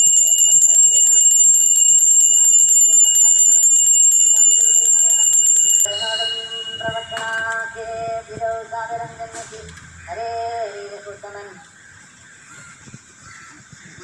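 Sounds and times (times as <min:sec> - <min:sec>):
hand bell rung rapidly: 0:00.0 - 0:07.8.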